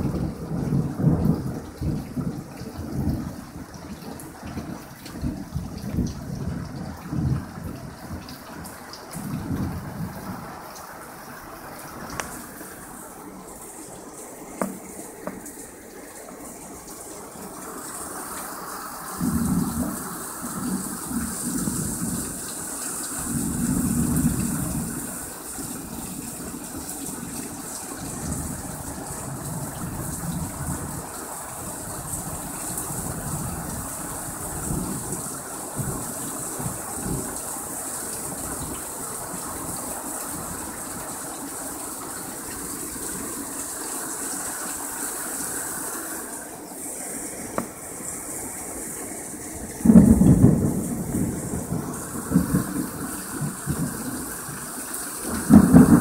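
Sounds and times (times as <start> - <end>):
thunder rumbling: 0.0 - 8.3, 9.2 - 10.5, 47.6 - 56.0
heavy rain hissing: 0.0 - 56.0.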